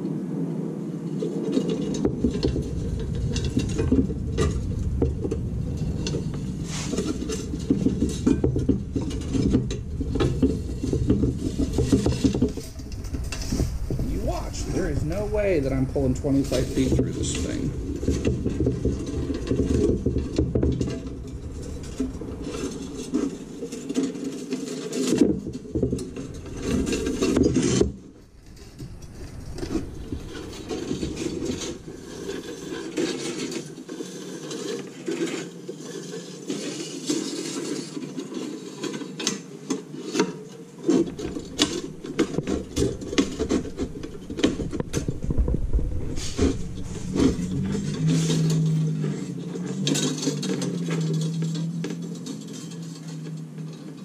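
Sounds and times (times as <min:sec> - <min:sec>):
wire rubbing and scraping: 0:01.2 - 0:54.0.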